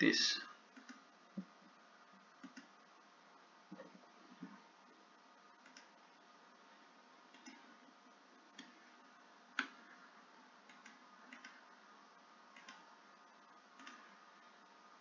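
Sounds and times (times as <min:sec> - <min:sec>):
room hiss: 0:00.0 - 0:15.0
computer mouse clicking: 0:00.7 - 0:01.5, 0:02.4 - 0:02.7, 0:05.6 - 0:06.0, 0:07.3 - 0:07.8, 0:08.5 - 0:08.8, 0:09.5 - 0:09.8, 0:10.6 - 0:11.6, 0:12.5 - 0:12.9, 0:13.7 - 0:14.2.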